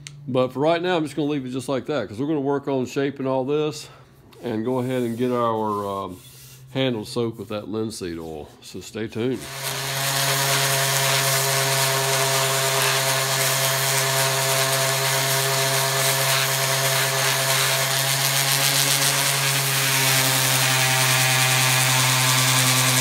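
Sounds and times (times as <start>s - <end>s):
orbit sander humming: 9.3s - 23.0s.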